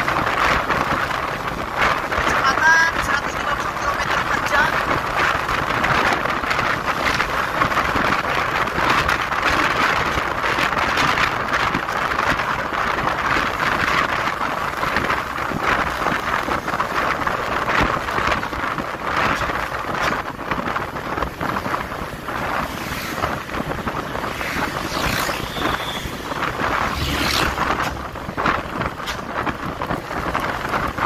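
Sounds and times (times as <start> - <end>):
road and vehicle noise: 0.0 - 31.0
wind rush on microphone: 0.0 - 31.0.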